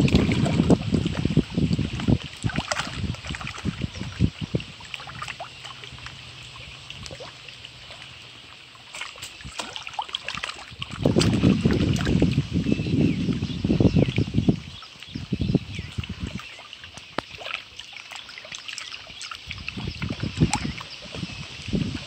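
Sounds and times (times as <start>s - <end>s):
wind gusting across microphone: 0.0s - 5.4s, 10.7s - 16.4s, 19.5s - 22.0s
waves lapping against rocks: 0.0s - 22.0s.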